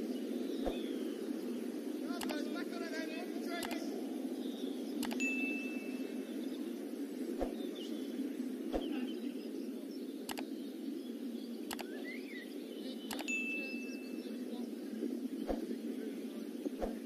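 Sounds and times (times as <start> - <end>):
muffled background noise: 0.0 - 17.0
faint clicks: 2.1 - 2.6, 3.5 - 4.0, 5.0 - 5.3, 10.2 - 10.5, 11.6 - 12.0, 13.1 - 13.4.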